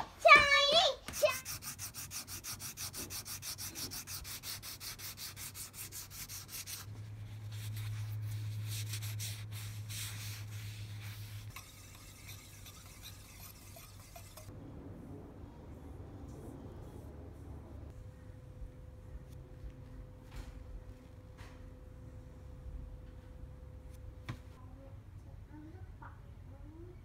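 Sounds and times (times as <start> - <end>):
sandpaper rubbing on wood: 1.1 - 14.5
steady low hum: 1.5 - 27.0.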